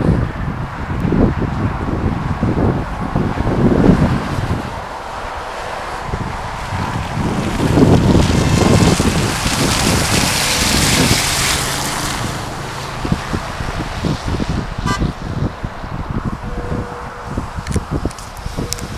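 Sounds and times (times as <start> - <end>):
wind buffeting microphone: 0.0 - 18.9
car driving past on wet road: 1.2 - 18.9.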